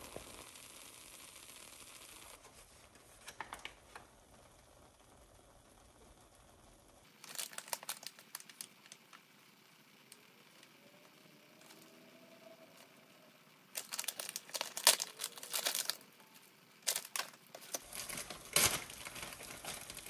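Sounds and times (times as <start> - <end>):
faint hiss: 0.0 - 14.2
crinkling and clicking: 3.2 - 4.1, 7.0 - 12.0, 12.6 - 20.0.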